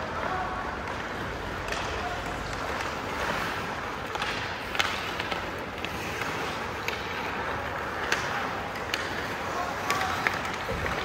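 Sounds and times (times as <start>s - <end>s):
hockey sticks and puck clacking: 0.0s - 11.0s
skate blades scraping ice: 0.2s - 11.0s.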